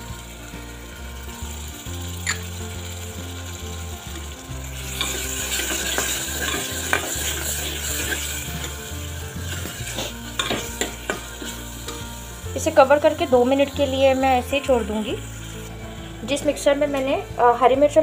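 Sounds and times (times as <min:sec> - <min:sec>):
food sizzling in hot oil: 0:00.0 - 0:18.0
metal spoon scraping pot: 0:04.8 - 0:12.8.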